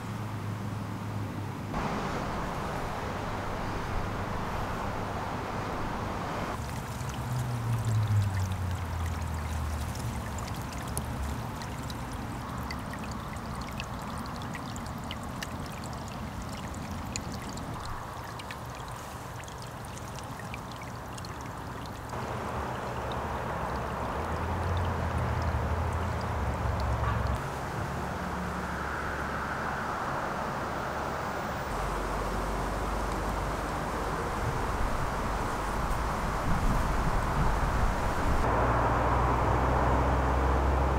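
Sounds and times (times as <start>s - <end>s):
stream trickling over pebbles: 6.4s - 29.6s, 30.6s - 40.9s
high droplet ticks: 6.6s - 27.4s.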